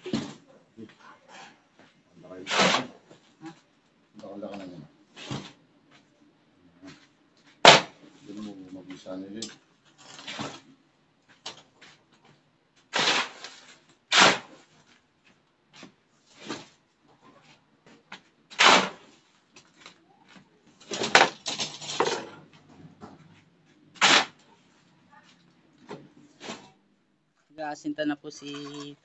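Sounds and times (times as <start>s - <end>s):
tool scraping wet concrete: 2.4s - 3.0s, 12.9s - 14.6s, 18.5s - 19.0s, 24.0s - 24.4s.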